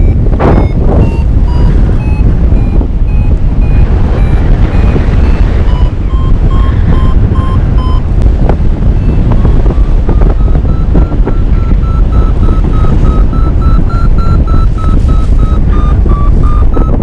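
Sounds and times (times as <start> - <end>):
variometer beeping: 0.0 - 17.0
wind rushing across microphone: 0.0 - 17.0.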